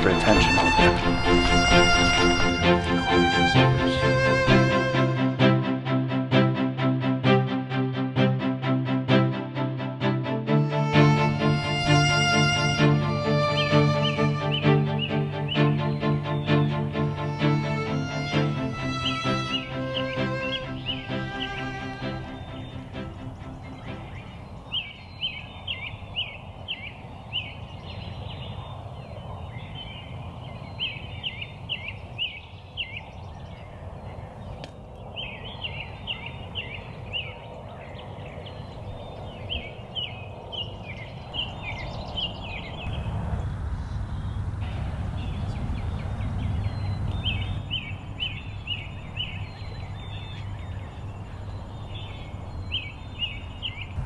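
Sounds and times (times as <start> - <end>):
bird calling high notes: 0.0 - 6.0, 10.5 - 24.4.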